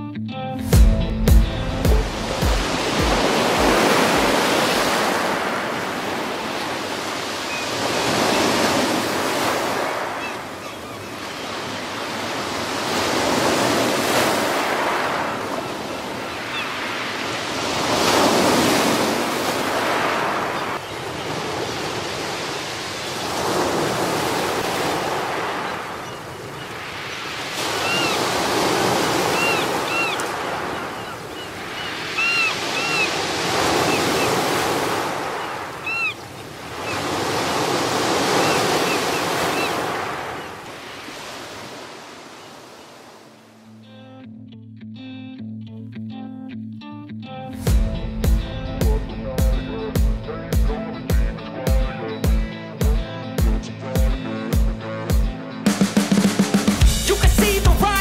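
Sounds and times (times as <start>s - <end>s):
waves breaking: 1.3s - 43.7s.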